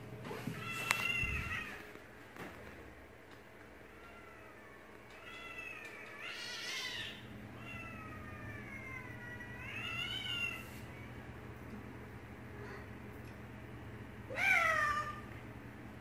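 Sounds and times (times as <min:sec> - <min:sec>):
cat yowls through speaker: 0:14.3 - 0:15.2.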